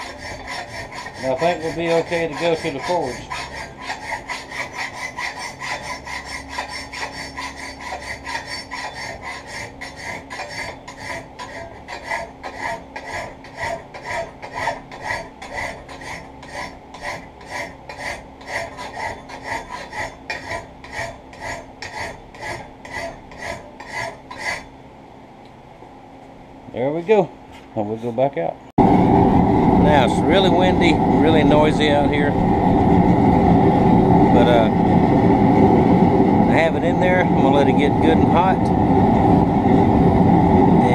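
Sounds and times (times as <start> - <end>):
file rasping on steel: 0.0 - 24.7.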